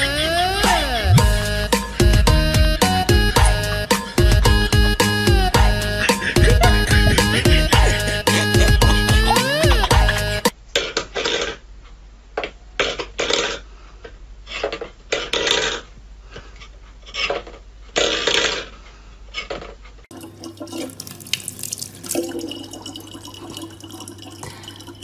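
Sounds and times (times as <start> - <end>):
tap water running into bottle: 20.1 - 25.0.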